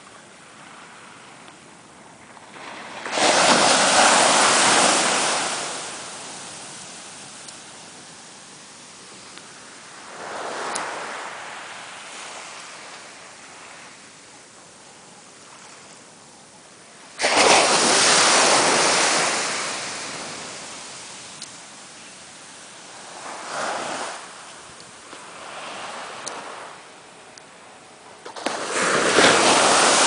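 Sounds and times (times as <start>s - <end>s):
surf breaking on beach: 2.4s - 13.2s, 17.1s - 21.8s, 22.9s - 24.5s, 28.2s - 30.0s.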